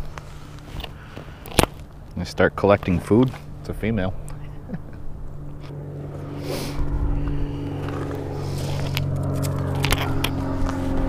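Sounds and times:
low motor hum: 0.0s - 11.0s
short scrape: 6.3s - 7.2s.

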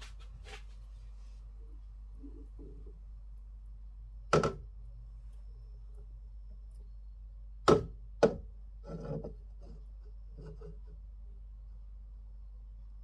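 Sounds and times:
soft scraping rustle: 0.0s - 1.6s
low steady hum: 0.0s - 13.0s.

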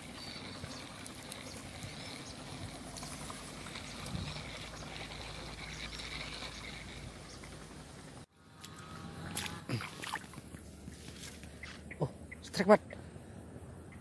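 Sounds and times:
birds chirping: 11.4s - 13.2s.

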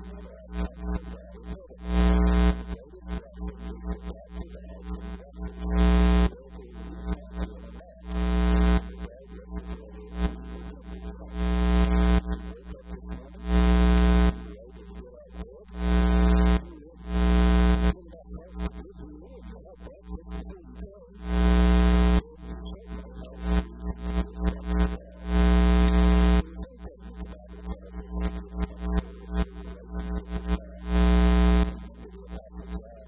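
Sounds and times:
electrical buzz bursts: 1.9s - 2.8s, 4.9s - 9.0s, 9.6s - 14.5s, 15.8s - 18.0s, 21.2s - 22.3s, 23.3s - 26.5s, 28.2s - 32.0s.

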